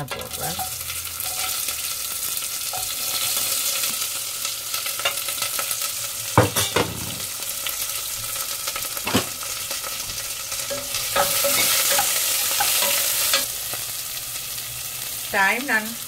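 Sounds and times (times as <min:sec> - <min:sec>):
onions sizzling in hot oil: 0:00.0 - 0:16.0.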